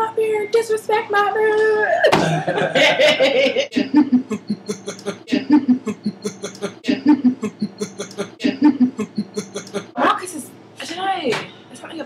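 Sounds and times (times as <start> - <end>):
woman laughing: 1.9 - 9.6.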